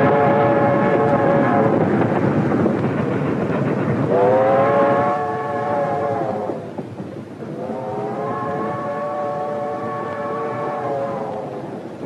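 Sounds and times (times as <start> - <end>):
locomotive whistle blasts: 0.0 - 1.8, 4.1 - 6.6, 7.5 - 11.5
train rumble and clatter: 0.0 - 12.0.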